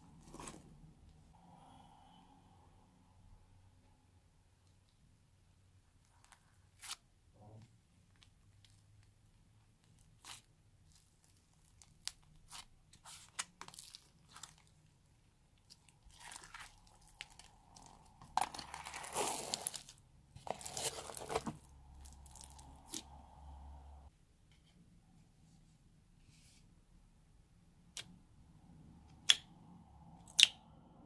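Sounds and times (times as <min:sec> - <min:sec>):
dense crunching of bead slime: 0:09.9 - 0:23.7
slime squished by hand: 0:15.6 - 0:23.1.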